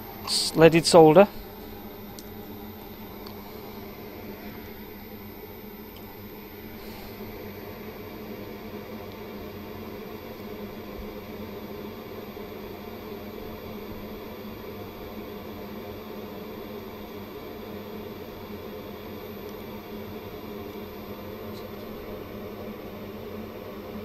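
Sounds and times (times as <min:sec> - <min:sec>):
high-pitched whine: 0:00.0 - 0:08.8
electrical equipment hum: 0:00.0 - 0:24.0.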